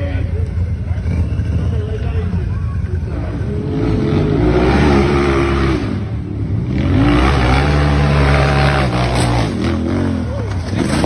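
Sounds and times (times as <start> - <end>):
engine revving hard: 3.1 - 11.0.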